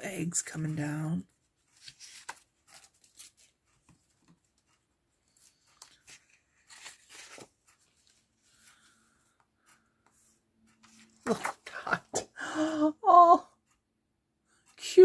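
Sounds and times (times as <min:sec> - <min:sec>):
paper sheets rustling and sliding: 0:01.7 - 0:04.0, 0:05.4 - 0:09.0.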